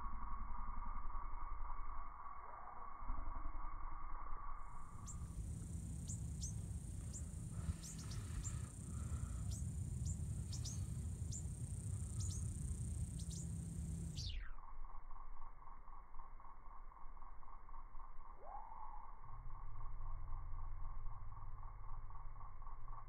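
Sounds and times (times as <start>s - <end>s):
high insect whine: 0.0s - 23.0s
low wind rumble: 3.4s - 14.4s.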